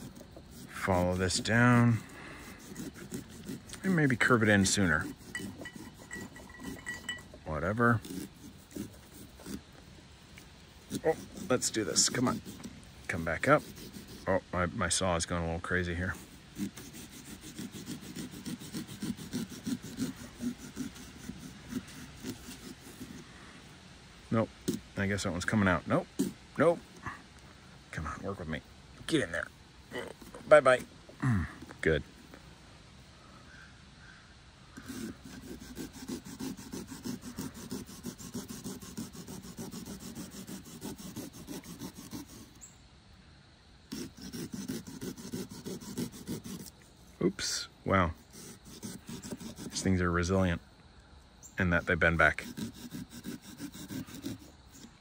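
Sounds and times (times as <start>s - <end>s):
saw cutting pumpkin: 0.0s - 23.3s, 24.3s - 27.2s, 29.1s - 32.0s, 34.8s - 42.7s, 43.9s - 50.6s, 51.6s - 55.0s.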